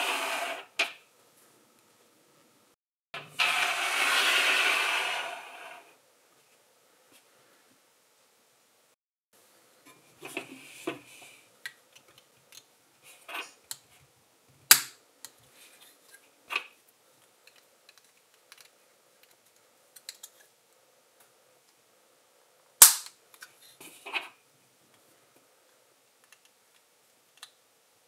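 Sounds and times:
sharp plastic snap: 14.7 - 15.0, 22.8 - 23.2.

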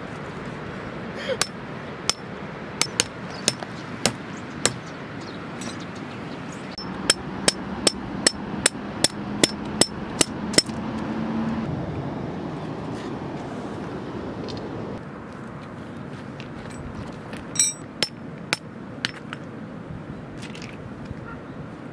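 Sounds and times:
hammer striking metal tent pegs: 2.8 - 4.8, 6.8 - 10.8, 17.6 - 18.7.

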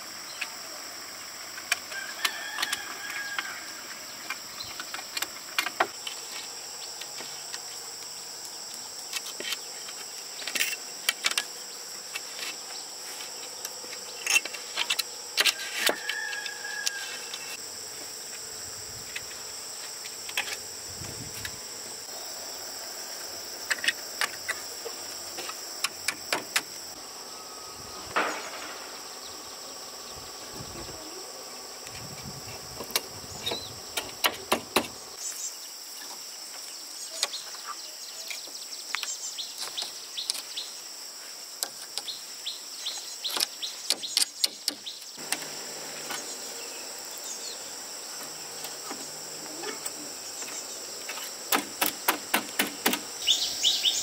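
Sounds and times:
high-pitched insect chorus: 0.0 - 54.0
sharp knocks and clicks: 25.8 - 26.7, 51.5 - 53.1.

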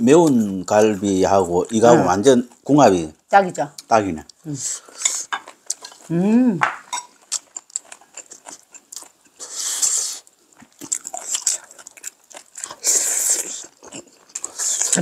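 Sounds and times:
people biting and chewing: 7.2 - 15.0.

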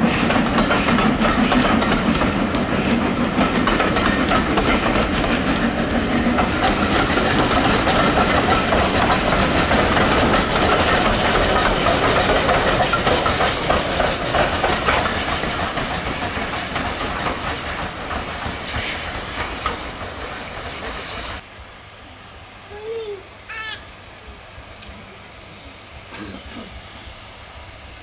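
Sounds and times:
wheels clattering over rail joints: 0.0 - 21.4
steam train passing: 0.0 - 28.0.

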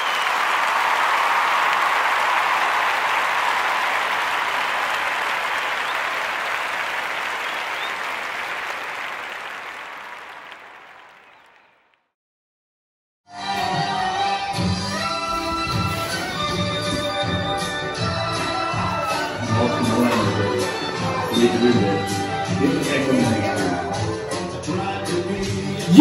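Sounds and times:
audience applause: 0.0 - 11.9.

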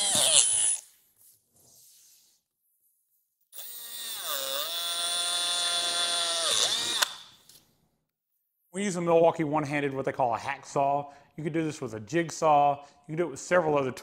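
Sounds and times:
cordless drill whining: 3.6 - 7.4.

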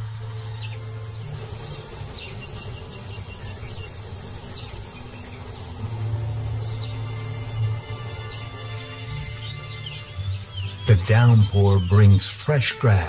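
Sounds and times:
low hum: 0.0 - 9.8
steady hiss: 0.0 - 12.0
insects chirping and buzzing: 0.0 - 12.3.

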